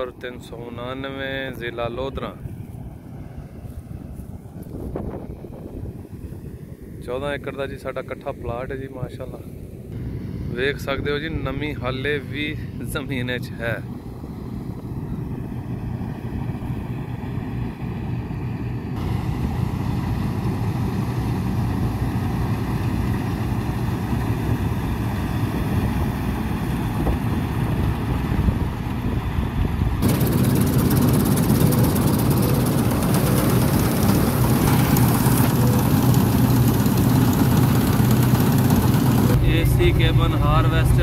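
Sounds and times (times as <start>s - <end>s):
combine harvester engine drone: 0.0s - 41.0s
header and reel clatter: 30.0s - 41.0s.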